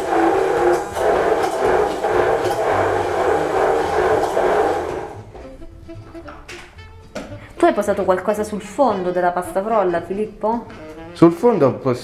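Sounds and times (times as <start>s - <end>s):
immersion blender in saucepan: 0.0s - 5.4s.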